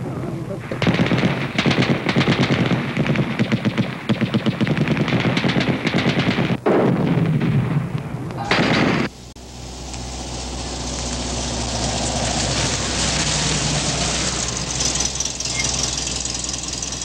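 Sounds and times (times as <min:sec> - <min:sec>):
rapid automatic gunfire: 0:00.8 - 0:07.8.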